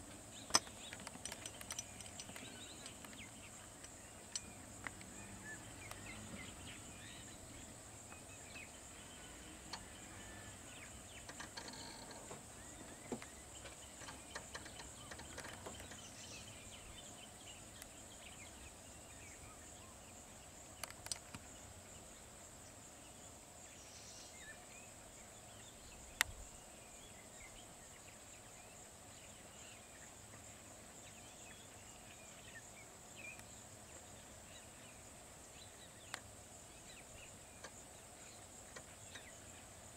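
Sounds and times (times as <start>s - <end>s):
faint bird chirps: 0.0s - 39.8s
sharp clicks: 0.5s - 5.2s, 20.8s - 21.5s.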